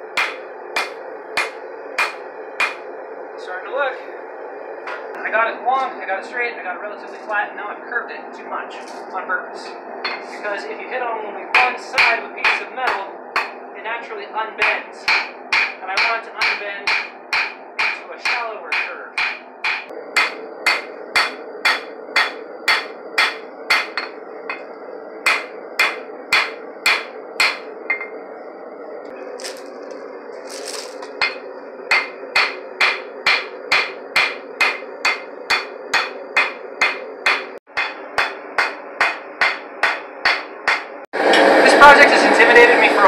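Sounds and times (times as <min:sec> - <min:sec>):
gas forge burner humming: 0:00.0 - 0:43.0
hammer striking steel on anvil: 0:00.2 - 0:02.8, 0:10.0 - 0:10.3, 0:11.6 - 0:13.6, 0:14.6 - 0:24.6, 0:25.2 - 0:28.1, 0:31.2 - 0:41.4.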